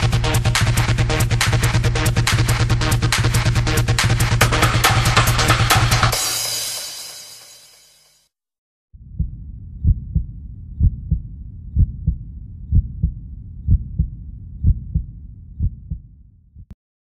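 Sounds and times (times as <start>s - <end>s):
heartbeat thumps: 9.0s - 16.8s.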